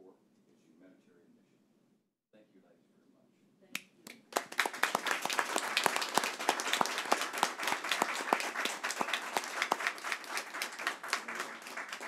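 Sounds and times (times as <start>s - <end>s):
group of people applauding: 4.3s - 12.0s.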